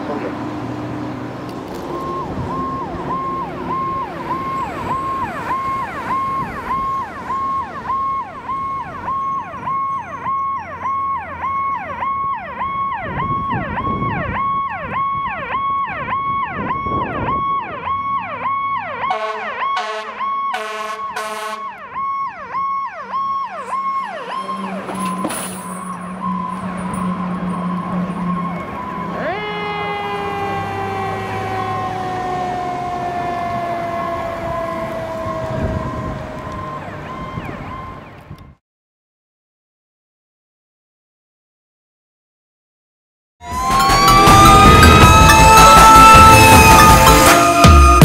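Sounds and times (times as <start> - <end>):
truck engine rumble: 0.0 - 38.5, 43.4 - 48.0
fire engine siren yelping: 1.6 - 38.6, 43.4 - 48.0
short horn blasts: 19.1 - 21.7.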